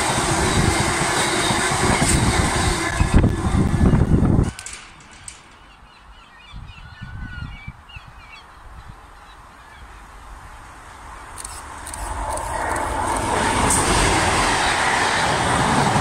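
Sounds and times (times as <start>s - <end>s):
diesel locomotives approaching: 0.0s - 6.1s, 9.3s - 16.0s
loud train noise: 0.0s - 6.1s, 9.4s - 16.0s
birds chirping: 3.8s - 10.3s.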